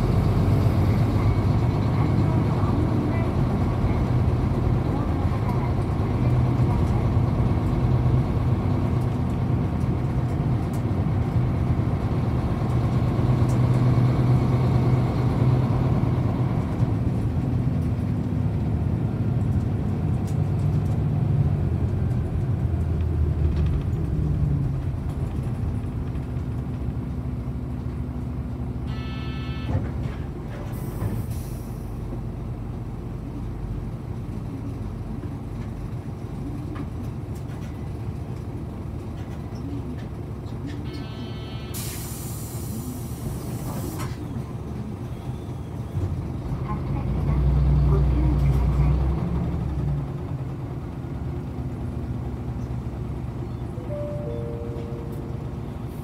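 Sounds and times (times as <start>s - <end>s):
bus diesel engine: 0.0s - 56.0s
short tone: 28.9s - 29.8s, 40.8s - 42.0s, 53.8s - 56.0s
air hiss: 41.7s - 44.1s.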